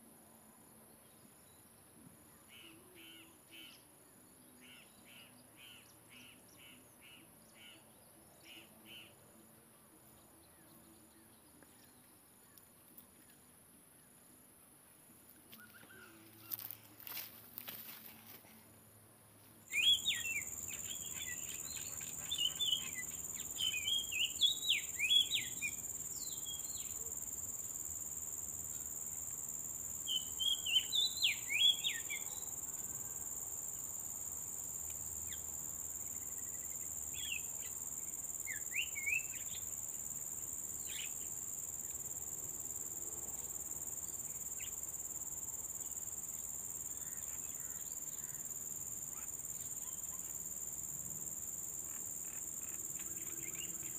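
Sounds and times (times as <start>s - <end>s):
insects droning: 15.7s - 53.9s.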